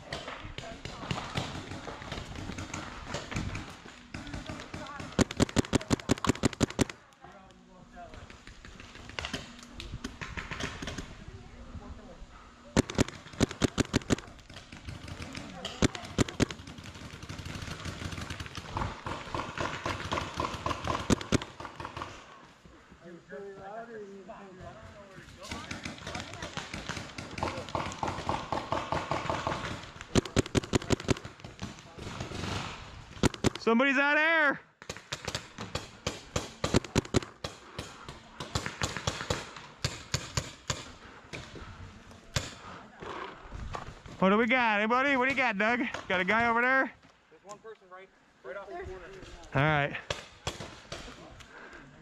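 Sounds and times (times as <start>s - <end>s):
paintball marker shots: 0.0s - 7.0s, 12.7s - 22.2s, 25.4s - 33.7s, 34.8s - 41.6s
faint repeated pops: 0.0s - 7.2s, 12.8s - 17.6s, 33.1s - 33.7s, 34.8s - 41.6s.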